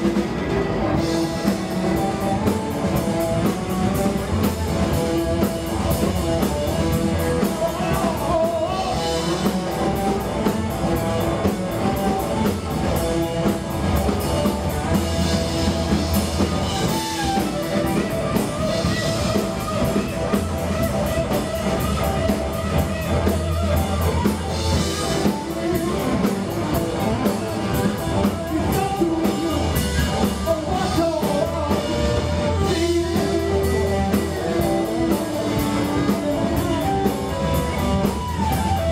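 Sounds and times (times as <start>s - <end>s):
bass guitar: 0.0s - 38.9s
distorted electric guitars: 0.0s - 38.9s
drum kit: 0.0s - 38.9s
person singing: 5.6s - 10.6s, 24.0s - 38.4s.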